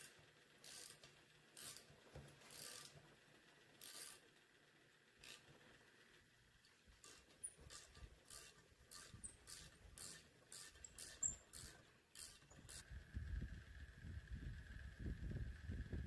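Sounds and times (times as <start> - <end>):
hand tool scraping metal: 7.0 - 12.8.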